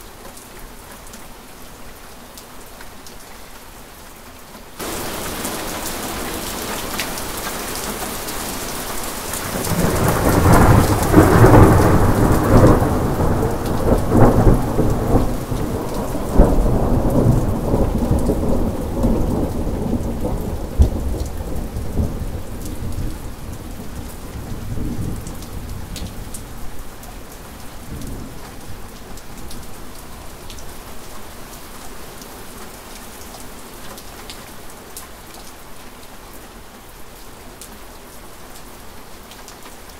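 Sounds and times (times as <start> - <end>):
steady rain: 0.0 - 39.9
thunder rumbling: 4.8 - 7.8, 9.2 - 24.1.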